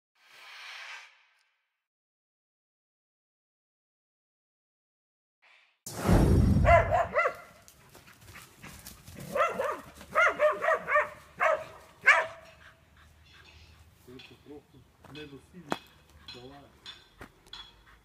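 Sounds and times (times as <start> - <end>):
dog barking: 6.6 - 7.6, 9.2 - 12.6.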